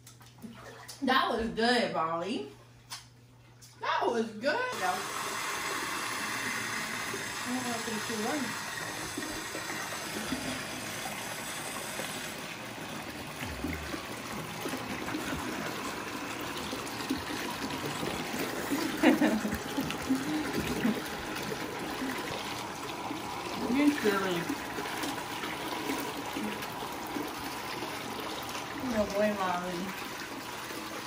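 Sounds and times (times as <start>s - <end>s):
water running into a bathtub: 0.0s - 1.6s, 2.9s - 31.0s.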